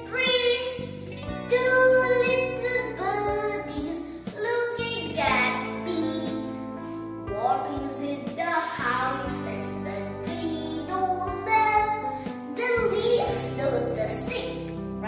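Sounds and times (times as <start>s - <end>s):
girl singing: 0.0s - 15.0s
musical accompaniment: 0.0s - 15.0s.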